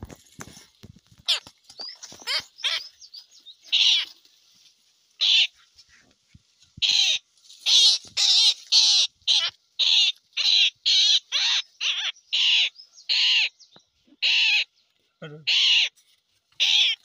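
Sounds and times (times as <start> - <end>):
bird rasping screeches: 3.7 - 4.1, 6.8 - 13.5, 14.2 - 14.7, 15.4 - 16.0, 16.6 - 17.0.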